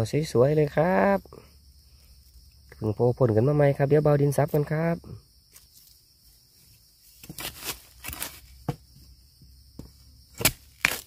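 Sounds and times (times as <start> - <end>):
high insect buzz: 0.0 - 11.0
crunching in dry bamboo litter: 5.5 - 8.8, 9.9 - 11.0.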